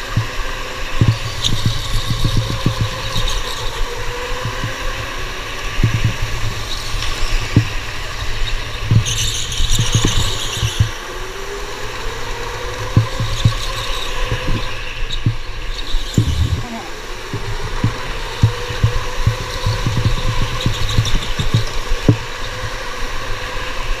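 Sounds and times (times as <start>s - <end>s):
chassis knocks and rattles: 12.8s - 22.2s
electric motor whine: 15.9s - 22.1s.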